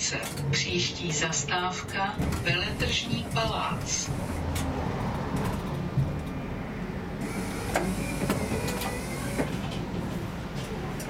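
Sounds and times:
tram rumbling on rails: 0.0 - 11.0.

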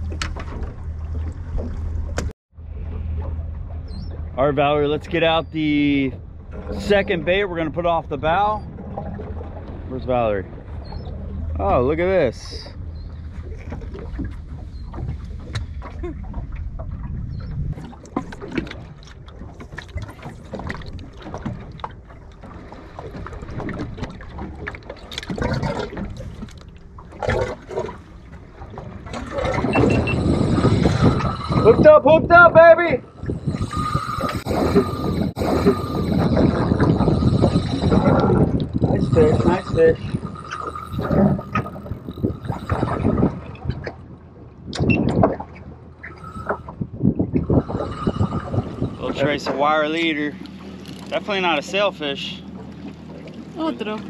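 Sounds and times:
low rumble: 0.0 - 18.4, 27.9 - 44.7
water lapping against boat hull: 0.0 - 54.0
wind buffeting microphone: 5.0 - 21.8, 27.2 - 51.6.

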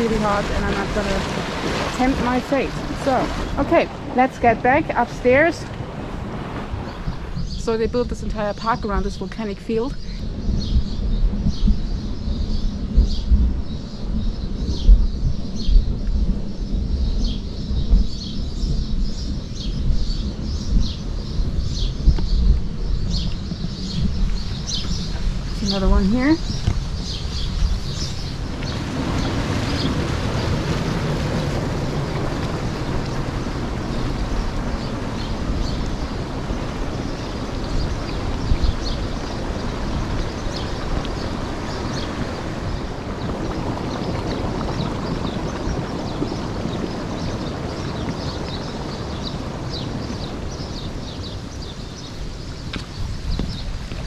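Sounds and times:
hot spring water bubbling: 0.0 - 7.8, 22.8 - 54.0.

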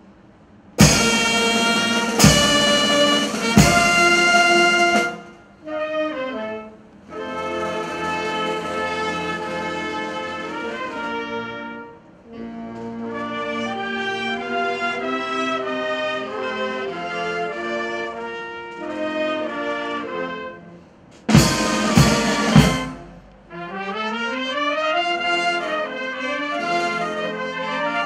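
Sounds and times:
cymbal crashes: 0.8 - 5.2, 21.3 - 23.2
drum strokes: 0.8 - 5.4, 21.3 - 23.3
wind band playing chords: 0.8 - 28.0.

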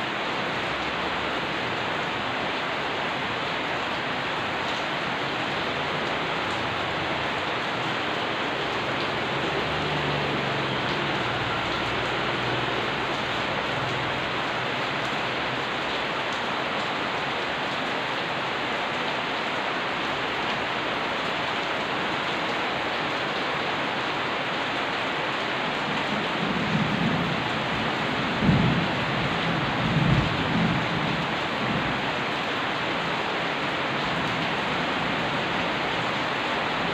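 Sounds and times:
steady rain: 0.0 - 36.9
low thunder rumble: 28.3 - 31.2.

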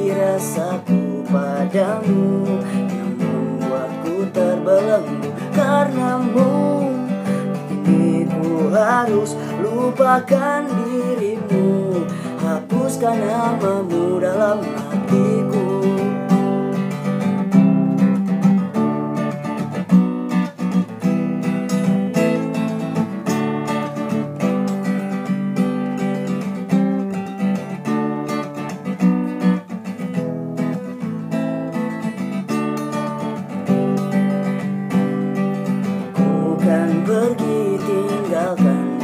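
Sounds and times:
acoustic guitar strumming: 0.0 - 39.0.

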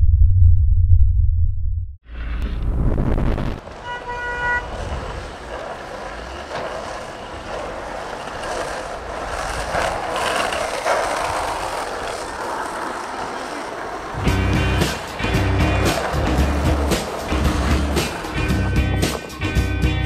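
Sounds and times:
street traffic rushing: 2.2 - 20.0
car horn: 3.7 - 5.2.

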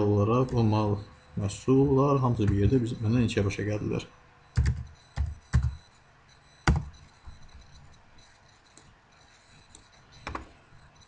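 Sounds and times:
computer keyboard keystrokes: 4.6 - 5.8.

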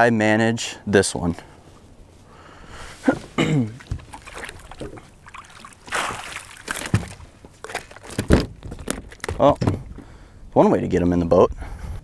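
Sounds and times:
fish thrashing and splashing water: 3.8 - 9.4.

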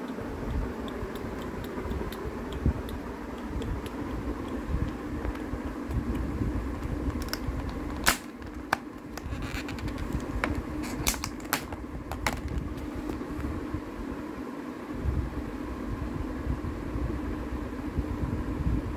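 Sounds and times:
steady background hum: 0.0 - 18.9.

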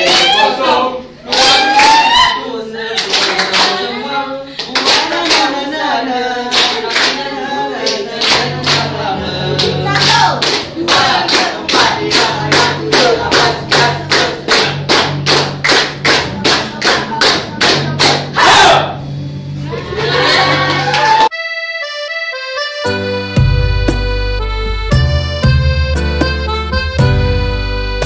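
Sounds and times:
people clapping in rhythm: 0.0 - 0.6, 1.2 - 2.2, 2.9 - 18.4, 20.4 - 21.3
singing and music: 0.0 - 15.0.

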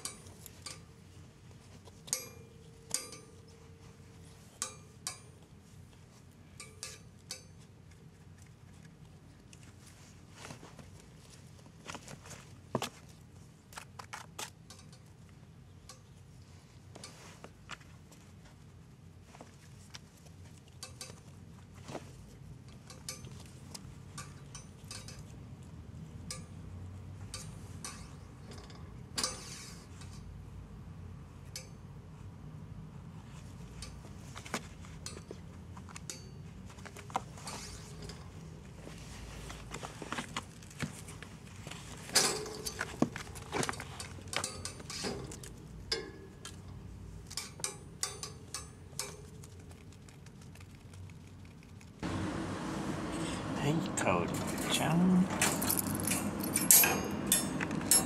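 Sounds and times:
scrape: 29.3 - 30.2, 37.4 - 38.0
kitten clicking and scratching cardboard: 49.2 - 52.0.

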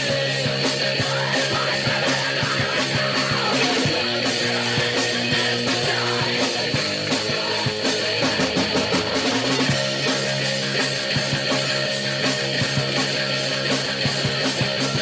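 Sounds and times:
rock band playing live: 0.0 - 15.0.

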